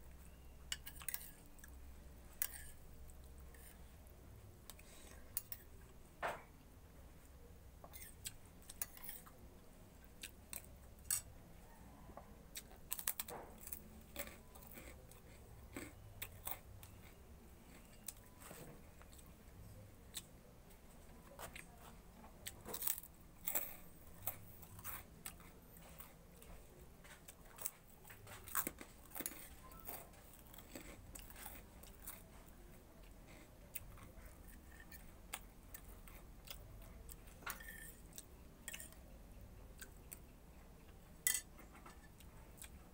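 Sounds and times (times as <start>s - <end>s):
spoon scraping a plate: 2.3s - 2.8s, 37.5s - 38.1s
person chewing: 10.0s - 11.3s, 12.0s - 19.4s, 22.4s - 39.1s, 41.3s - 42.8s.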